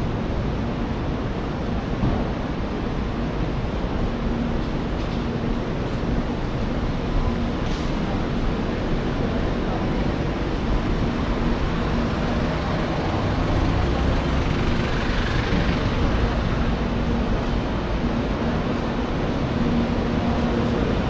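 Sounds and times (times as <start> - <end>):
traffic rumble: 0.0 - 21.0
vehicle passing close: 11.4 - 16.8.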